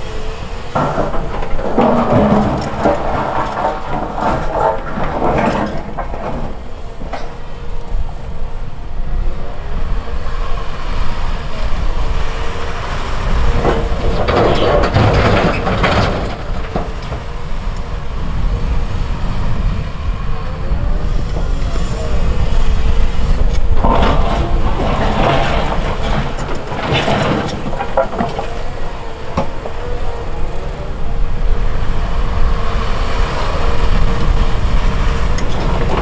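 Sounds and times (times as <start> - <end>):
excavator diesel engine: 0.0 - 36.0
bucket scraping through rock: 0.8 - 6.8, 23.6 - 28.8
rock dumped into truck bed: 0.8 - 7.4, 23.6 - 29.8.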